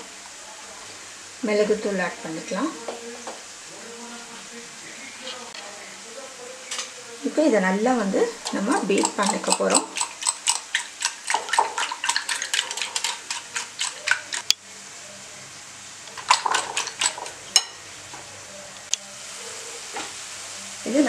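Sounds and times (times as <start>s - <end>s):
whisk beating eggs in bowl: 8.4s - 14.5s, 16.1s - 17.6s.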